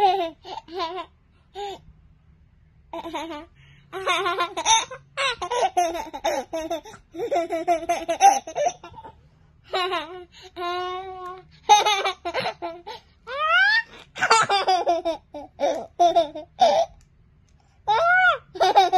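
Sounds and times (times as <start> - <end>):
toddler laughing: 3.0 - 17.0, 17.9 - 18.9.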